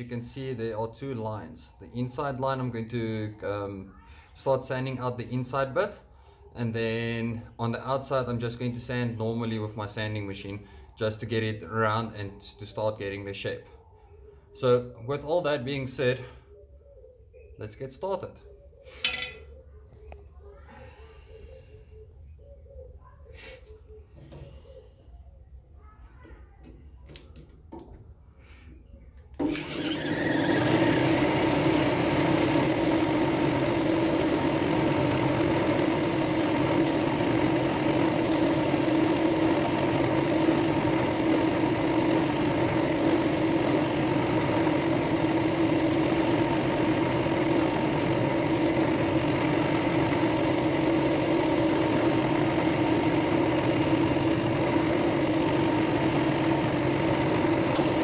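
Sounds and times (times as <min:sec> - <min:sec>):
drill press sanding: 0:29.4 - 0:58.0.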